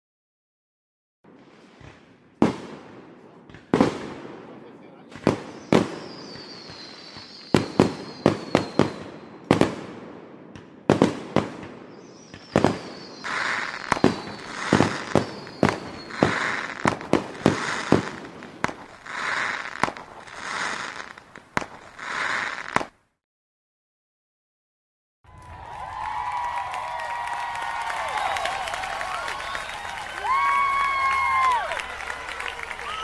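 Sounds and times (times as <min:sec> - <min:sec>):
whistling rockets: 0:01.3 - 0:22.9, 0:27.8 - 0:33.0
fireworks bangs: 0:01.3 - 0:23.0
hissing bursts: 0:12.4 - 0:22.9.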